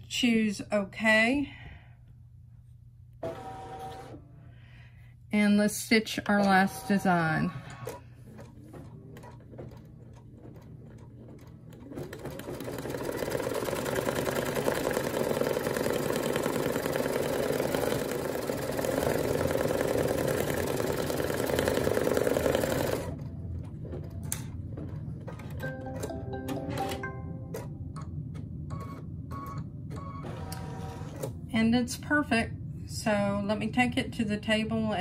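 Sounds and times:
embroidery machine stitching: 0:07.6 - 0:23.3.

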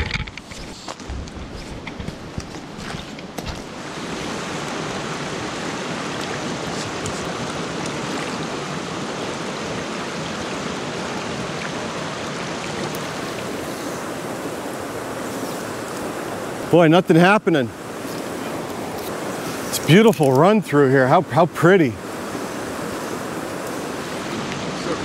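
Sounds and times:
stream water rushing: 0:00.0 - 0:25.0.

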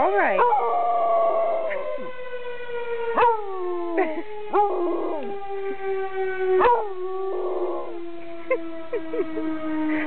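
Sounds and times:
fire siren: 0:00.0 - 0:10.0
dog howling: 0:00.2 - 0:02.0, 0:03.2 - 0:05.3, 0:06.6 - 0:08.0.

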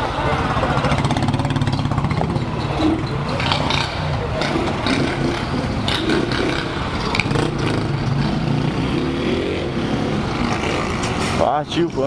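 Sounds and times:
motorcycle engines idling: 0:00.0 - 0:12.0
motorcycle revving and pulling away: 0:00.0 - 0:12.0.

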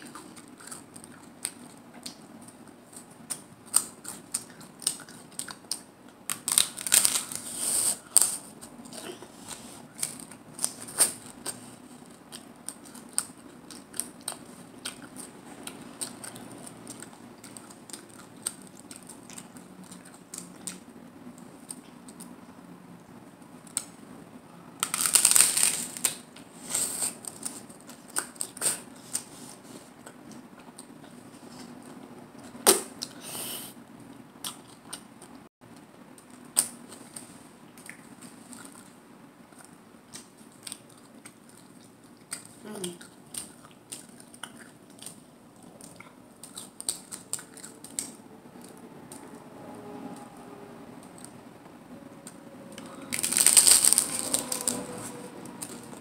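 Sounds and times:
chewing and mouth clicks: 0:00.0 - 0:07.4, 0:08.0 - 0:22.4, 0:34.0 - 0:49.3
crisp crunching bites: 0:03.3 - 0:08.5, 0:24.8 - 0:26.2, 0:52.8 - 0:56.0.

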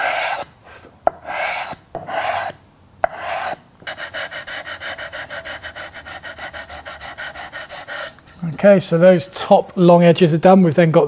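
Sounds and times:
sanding block on wood: 0:00.0 - 0:00.5, 0:01.1 - 0:08.2.

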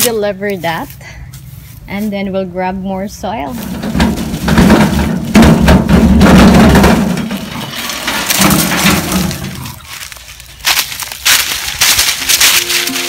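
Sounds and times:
wheelbarrow wheel rumbling: 0:03.2 - 0:13.0
wheelbarrow tray clattering: 0:03.5 - 0:13.0.

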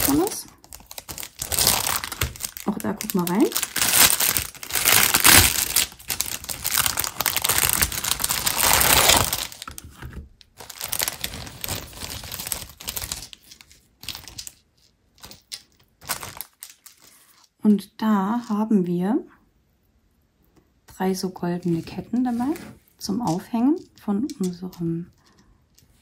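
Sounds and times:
plastic bag crinkling: 0:00.0 - 0:17.5.

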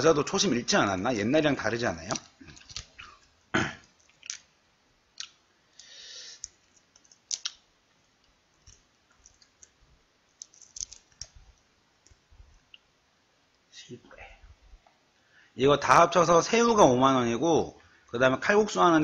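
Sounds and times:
shrimp shells cracking: 0:02.0 - 0:12.8.

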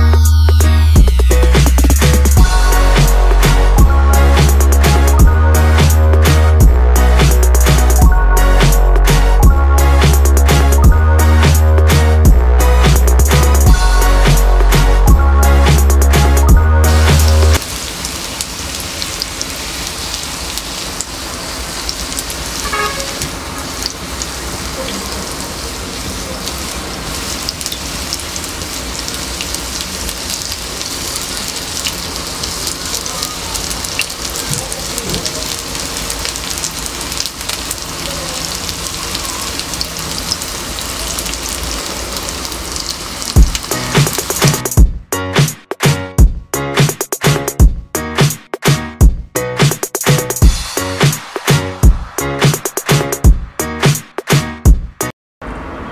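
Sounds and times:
fries sizzling in a frying pan: 0:16.8 - 0:44.8.

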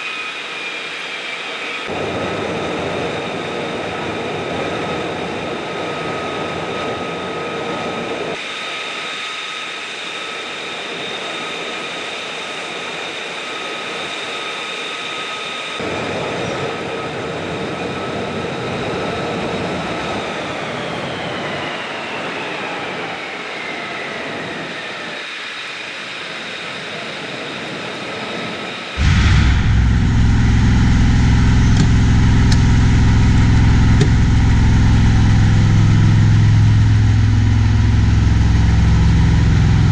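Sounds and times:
jet turbine whine: 0:00.0 - 0:39.9
loud low engine hum: 0:29.0 - 0:39.9
noisy rush: 0:29.0 - 0:39.9.

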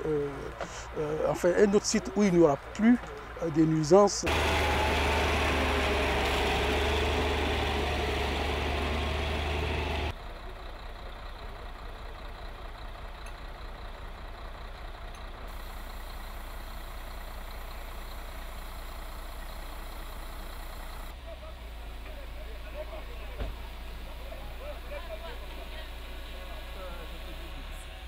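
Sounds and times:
machine engine running: 0:04.3 - 0:10.1.

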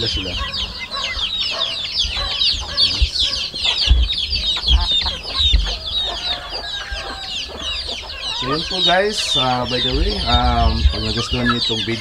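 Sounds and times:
dull low thumps: 0:00.0 - 0:06.0, 0:09.7 - 0:11.4
chicks peeping: 0:00.0 - 0:12.0
hens clucking: 0:00.0 - 0:12.0.

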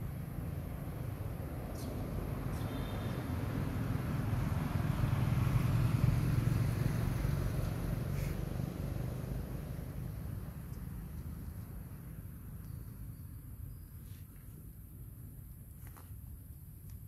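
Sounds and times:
motor vehicle passing: 0:00.0 - 0:12.2.

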